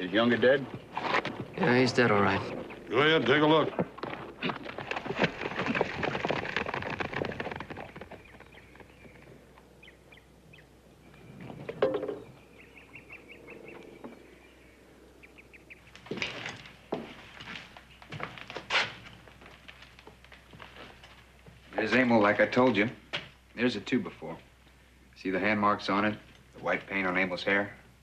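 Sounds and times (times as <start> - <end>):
footsteps on boards: 0.3 - 5.4, 16.0 - 21.9
bird chirps and trill: 8.2 - 16.0.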